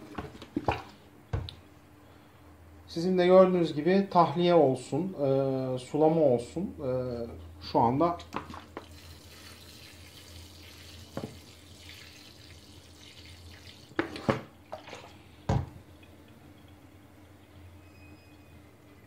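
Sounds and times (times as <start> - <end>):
water trickling into soil: 8.5 - 14.0
bottle knocks and thump: 15.5 - 15.8.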